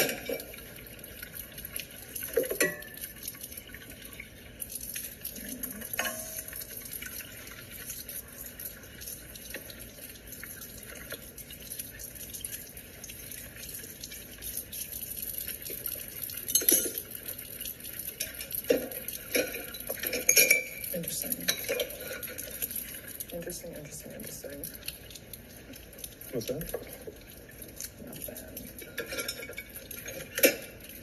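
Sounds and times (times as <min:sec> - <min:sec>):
dishes and glasses clinking: 0:00.0 - 0:00.6, 0:02.3 - 0:03.1, 0:05.9 - 0:06.6, 0:16.5 - 0:17.2, 0:18.2 - 0:22.7, 0:28.8 - 0:31.0
tap water running into sink: 0:00.0 - 0:31.0.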